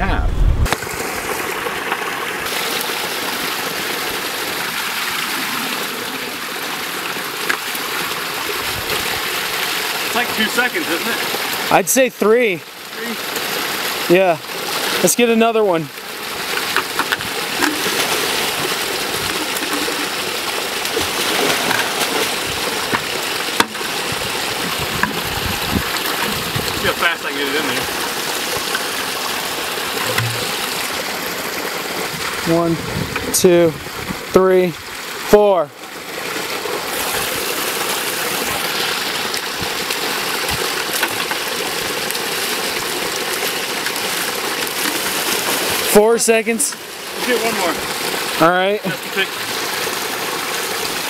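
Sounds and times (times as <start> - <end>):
water pouring into a pool: 0.7 - 51.0
water splashing into bucket: 15.9 - 32.4.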